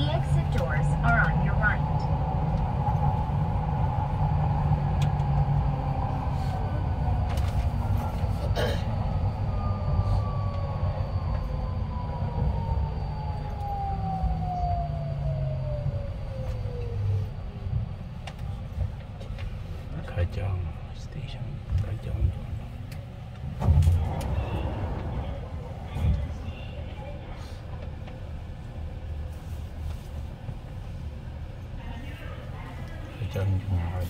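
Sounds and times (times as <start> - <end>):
train rumbling in tunnel: 0.0 - 34.0
train motor whine: 7.2 - 17.7.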